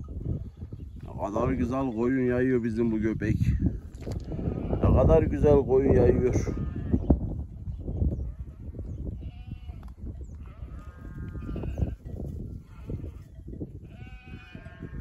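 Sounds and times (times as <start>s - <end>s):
sheep bleating: 4.2s - 5.2s, 6.2s - 7.1s, 8.2s - 9.8s, 10.4s - 15.0s.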